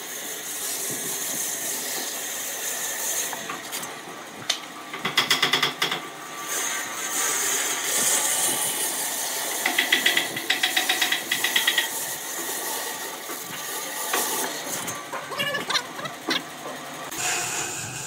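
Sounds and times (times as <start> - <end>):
bandsaw cutting wood: 6.4 - 16.4
rapid chattering pulses: 14.9 - 17.3.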